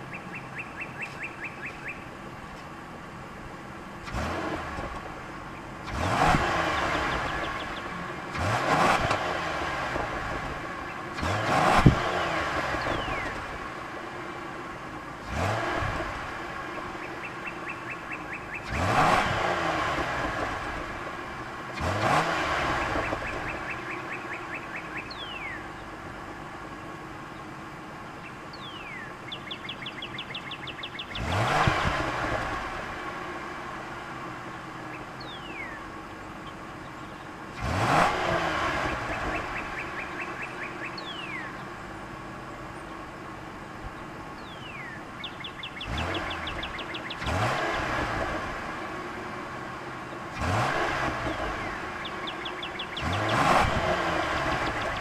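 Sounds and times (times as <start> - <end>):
car engine revving: 0.0 - 55.0
exhaust pop: 4.0 - 14.1.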